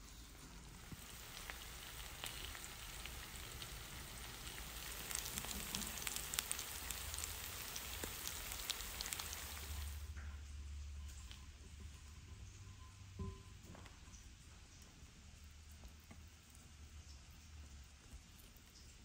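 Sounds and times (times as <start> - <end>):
fish sizzling in oil: 0.3 - 10.1.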